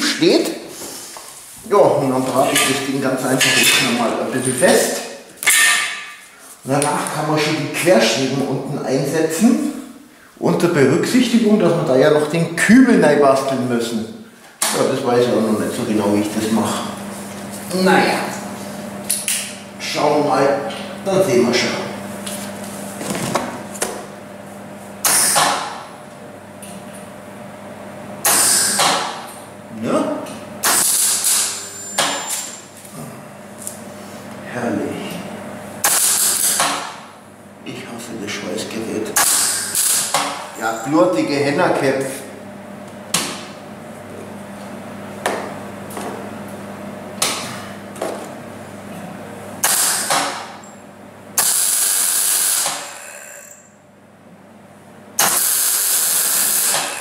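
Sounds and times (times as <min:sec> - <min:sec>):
sharp metallic knocks: 0:05.4 - 0:06.2
arc welder hiss bursts: 0:51.4 - 0:53.4, 0:55.2 - 0:57.0.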